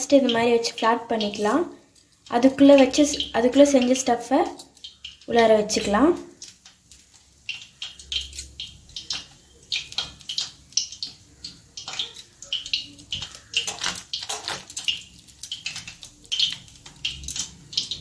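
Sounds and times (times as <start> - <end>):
plastic sheet crinkling: 5.3 - 18.0.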